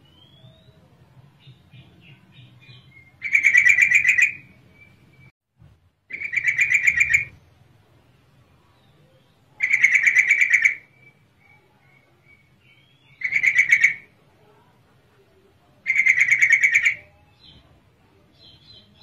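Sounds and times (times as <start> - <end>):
bird chattering call: 3.2 - 4.5, 6.1 - 7.4, 9.6 - 10.9, 13.1 - 14.1, 15.9 - 17.0.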